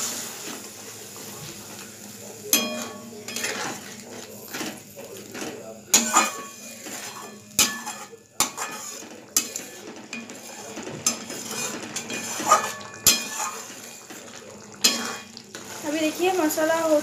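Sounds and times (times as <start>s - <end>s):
spatula clinking on metal: 2.5s - 14.2s, 14.8s - 15.4s
spatula scraping metal pan: 2.5s - 17.0s.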